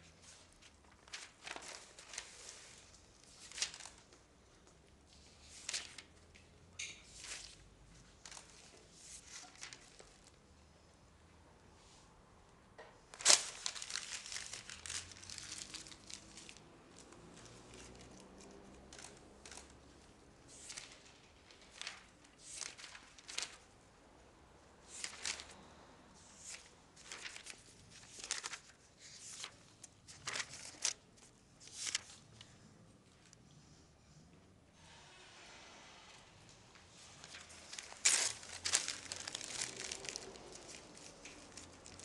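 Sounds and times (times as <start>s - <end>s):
dry leaves and paper rustling: 0.3s - 4.2s, 5.5s - 6.2s, 13.1s - 23.8s, 24.9s - 25.7s, 26.3s - 32.2s, 37.2s - 42.0s.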